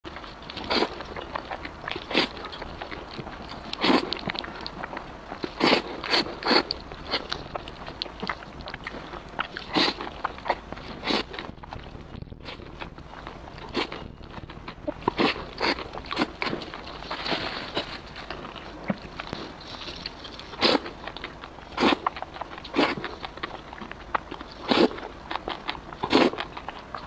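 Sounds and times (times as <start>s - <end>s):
mouth clicks: 0.1s - 27.0s
wet chewing: 0.1s - 27.0s
person slurping noodles: 5.6s - 7.3s, 9.6s - 10.0s, 11.0s - 11.4s, 20.5s - 20.9s, 21.8s - 22.1s, 24.6s - 25.0s, 26.0s - 26.4s.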